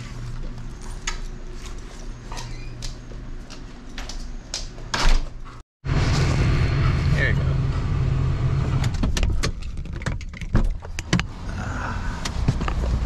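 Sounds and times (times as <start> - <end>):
low hum: 5.8 - 9.7.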